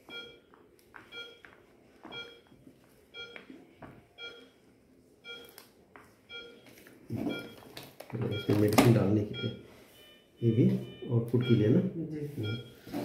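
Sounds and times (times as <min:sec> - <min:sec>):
short electronic beep: 0:12.4 - 0:12.9.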